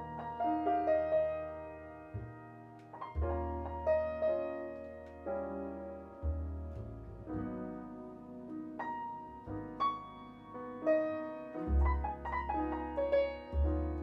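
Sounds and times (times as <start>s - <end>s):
deep bass notes: 0.0s - 14.0s
grand piano jazz playing: 0.0s - 14.0s.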